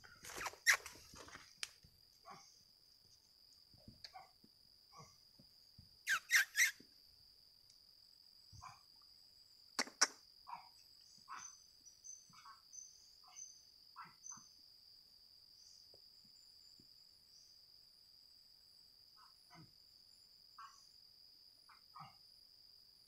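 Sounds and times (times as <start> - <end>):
insect drone: 0.0 - 23.0
animal calls: 6.1 - 6.8, 11.3 - 11.6.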